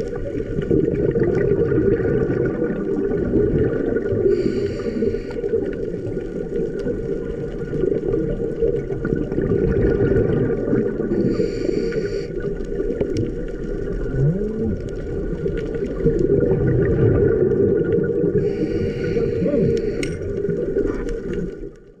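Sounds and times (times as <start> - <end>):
water and bubbles rumble: 0.0 - 22.0
diver inhaling through regulator: 4.2 - 5.7, 11.1 - 12.6, 18.3 - 21.2.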